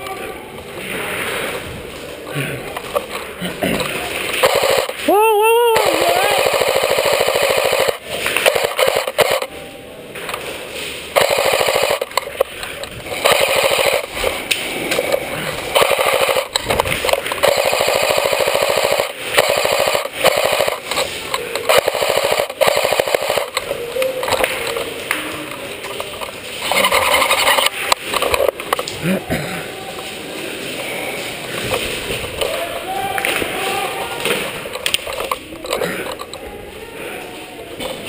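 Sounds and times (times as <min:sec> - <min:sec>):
airsoft guns firing bursts: 0:04.2 - 0:05.1, 0:05.8 - 0:09.5, 0:11.1 - 0:12.4, 0:13.0 - 0:23.7.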